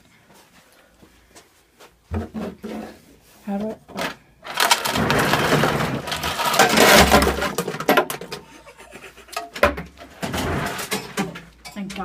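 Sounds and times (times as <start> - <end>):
ice cubes clattering: 4.4 - 8.4.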